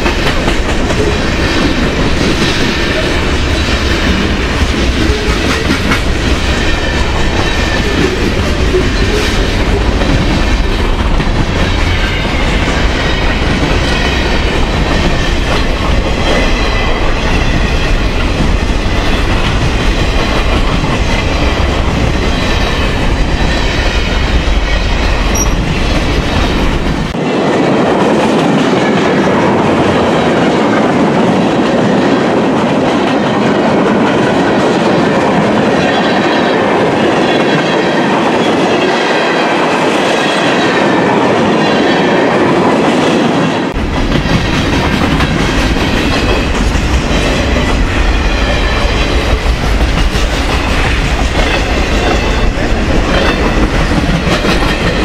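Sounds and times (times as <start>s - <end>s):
freight train wheels rumbling: 0.0s - 55.0s
high wheel squeal: 25.3s - 25.8s.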